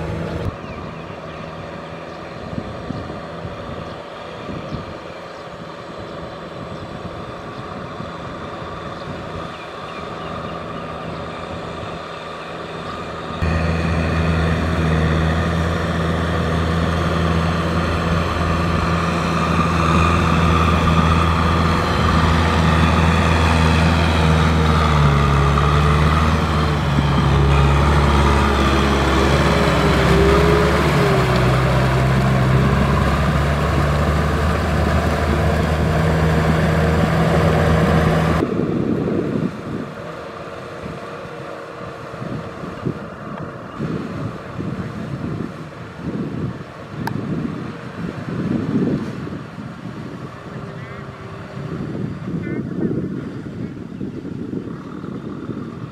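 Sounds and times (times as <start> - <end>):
tractor diesel engine under load: 0.0 - 55.9.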